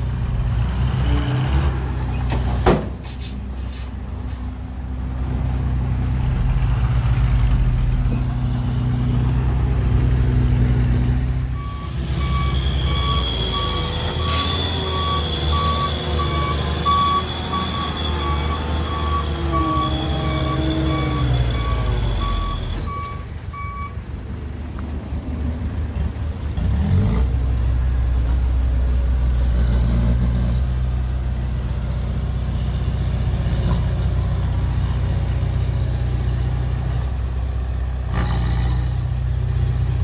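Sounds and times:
diesel truck engine running: 0:00.0 - 0:40.0
reversing alarm beeping: 0:11.6 - 0:24.0.

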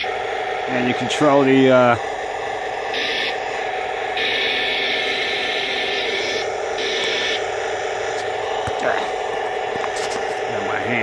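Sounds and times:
harsh motor whir: 0:00.0 - 0:11.0
humming tank engine sound effect: 0:00.0 - 0:11.0.

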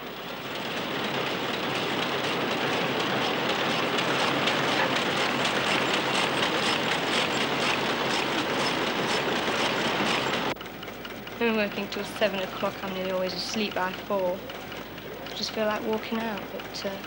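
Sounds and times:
packing machines clattering: 0:00.0 - 0:10.6.

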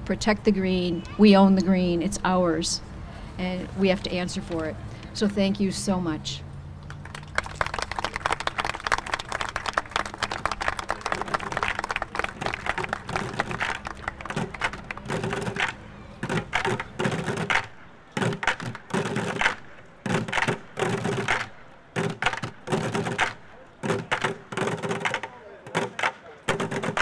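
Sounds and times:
crowd applauding: 0:06.8 - 0:27.0
drumming on plastic buckets: 0:10.5 - 0:27.0.

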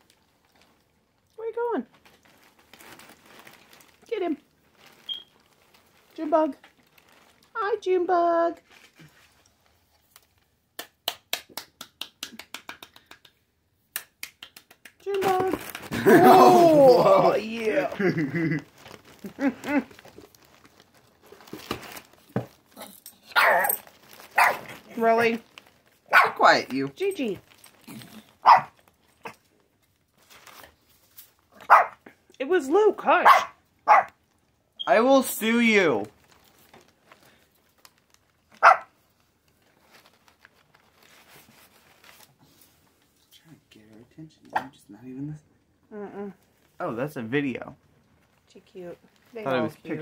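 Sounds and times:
paper crinkling and rustling: 0:00.0 - 0:01.3, 0:01.9 - 0:07.5, 0:08.6 - 0:10.6, 0:15.2 - 0:32.0, 0:35.1 - 0:43.2, 0:47.8 - 0:50.0
dog bark: 0:23.3 - 0:23.8, 0:24.4 - 0:24.7, 0:26.1 - 0:26.4, 0:28.4 - 0:28.8, 0:31.6 - 0:32.0, 0:33.2 - 0:34.2, 0:38.6 - 0:38.9.

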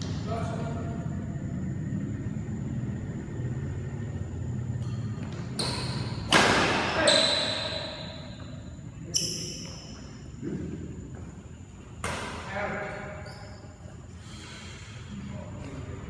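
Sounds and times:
racket hitting shuttlecock: 0:04.8 - 0:08.0
shoes squeaking on court floor: 0:04.8 - 0:14.1.

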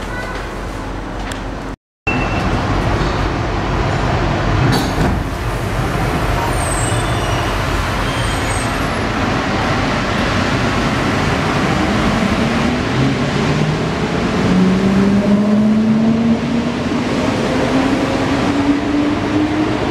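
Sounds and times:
metro cabin noise: 0:00.0 - 0:19.9
train doors shutting: 0:04.6 - 0:08.6.

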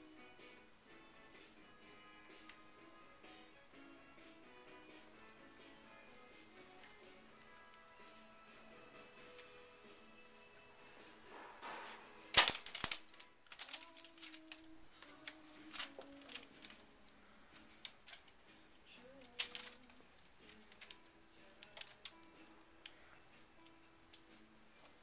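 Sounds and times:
faint background music: 0:00.0 - 0:25.0
wicker crackling under cat claws: 0:11.2 - 0:23.1.

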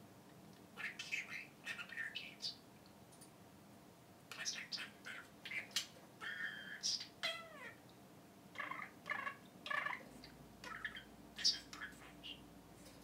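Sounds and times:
budgerigar talking: 0:00.8 - 0:02.6, 0:04.3 - 0:07.8, 0:08.6 - 0:12.5
bird chirps: 0:10.6 - 0:12.4.

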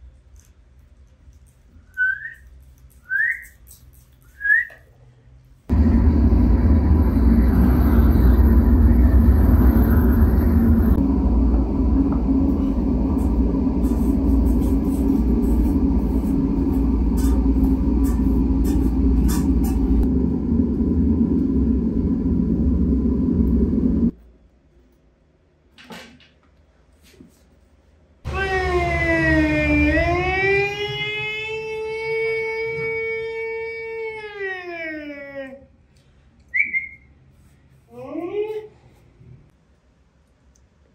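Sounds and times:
gas torch flame rumbling: 0:05.7 - 0:24.2.

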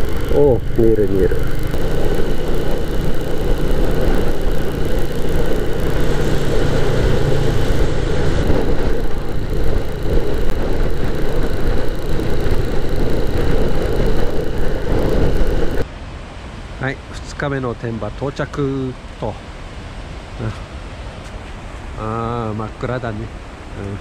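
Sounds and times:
motorcycle engine cruising: 0:00.0 - 0:15.8
wind and road noise: 0:00.0 - 0:24.0.

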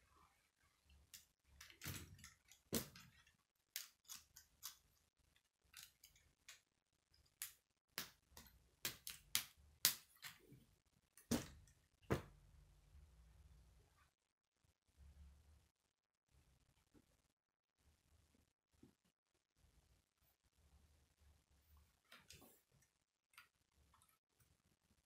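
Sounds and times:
plastic pieces snapping together: 0:01.1 - 0:05.0, 0:07.3 - 0:10.4.

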